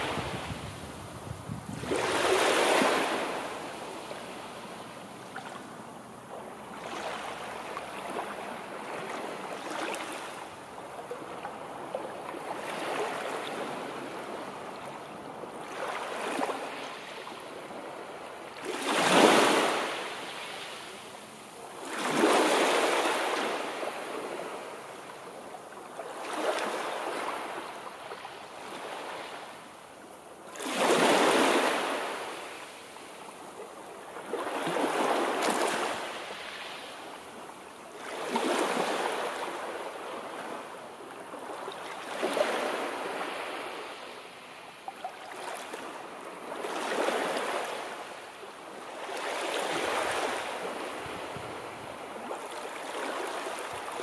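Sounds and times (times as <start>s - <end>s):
sea waves breaking on beach: 0.0s - 4.7s, 15.6s - 21.0s, 21.7s - 24.8s, 30.5s - 33.2s, 34.2s - 37.3s, 38.0s - 44.4s, 45.1s - 54.0s.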